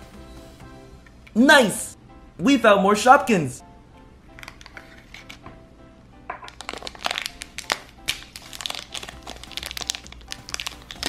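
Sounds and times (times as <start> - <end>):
background music: 0.0 - 11.0
plastic wrapper crinkling: 6.3 - 11.0.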